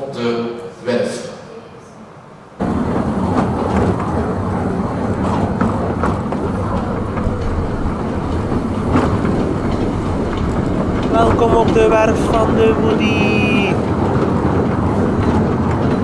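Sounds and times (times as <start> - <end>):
clicks over rail joints: 2.6 - 16.0
train wheels rumbling on rails: 2.6 - 16.0.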